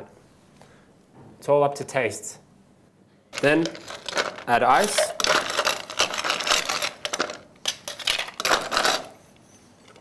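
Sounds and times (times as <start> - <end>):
ice rattling in a cocktail shaker: 3.4 - 9.1.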